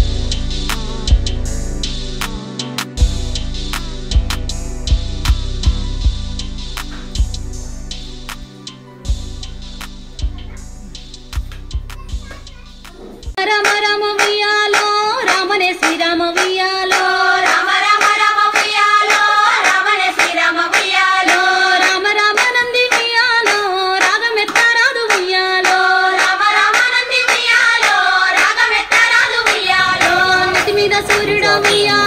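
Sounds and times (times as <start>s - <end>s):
rhythmic hand clapping: 0.7s - 0.9s, 2.2s - 3.0s, 6.7s - 7.2s, 8.2s - 8.5s, 9.8s - 10.1s, 11.0s - 32.0s
high singing voice: 13.4s - 32.0s.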